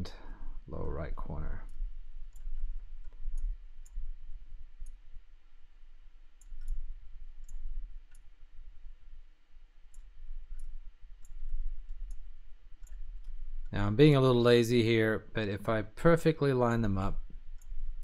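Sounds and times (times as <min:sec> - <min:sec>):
low steady rumble: 0:00.0 - 0:18.0
computer mouse clicking: 0:01.6 - 0:05.1, 0:06.3 - 0:08.4, 0:09.9 - 0:13.7, 0:17.5 - 0:18.0.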